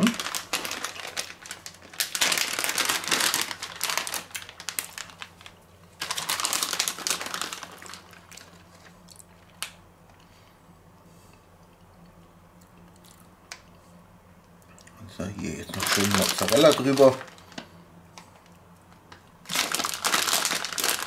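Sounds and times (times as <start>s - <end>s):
plastic bag crinkling: 0.0s - 9.7s, 15.5s - 17.7s, 19.4s - 21.0s.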